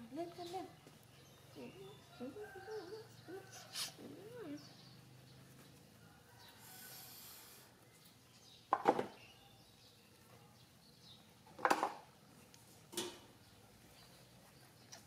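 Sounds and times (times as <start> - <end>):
soft rustle: 12.2 - 15.0.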